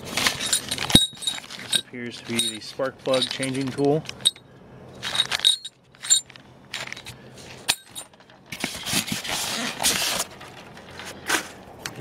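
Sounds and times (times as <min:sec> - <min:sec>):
rustling in foam packing: 0:00.0 - 0:01.8, 0:06.8 - 0:11.6
metal tool clinking: 0:00.2 - 0:08.2.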